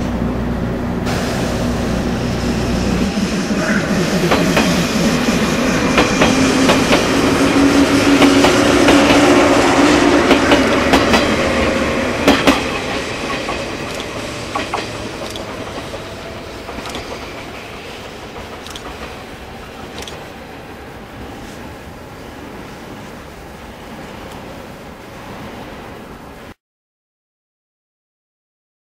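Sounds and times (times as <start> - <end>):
train low hum: 0.0 - 26.6
train wheels clicking over rail joints: 4.0 - 21.7.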